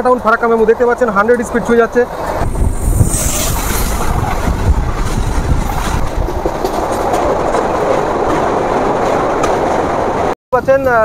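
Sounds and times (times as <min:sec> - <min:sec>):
train wheels rumbling over rails: 0:02.0 - 0:10.3.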